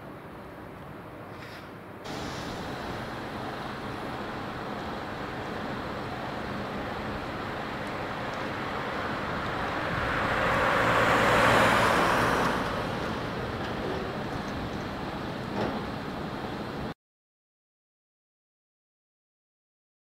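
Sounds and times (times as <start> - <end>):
passing vehicle tyre and engine noise: 2.1 - 17.0.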